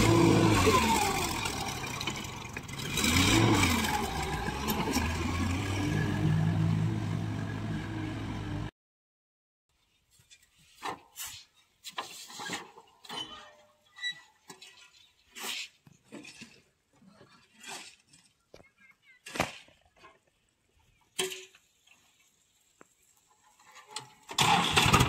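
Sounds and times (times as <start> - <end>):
tractor engine revving: 0.0 - 8.7, 24.4 - 25.0
faint scrapes and knocks: 9.8 - 18.7.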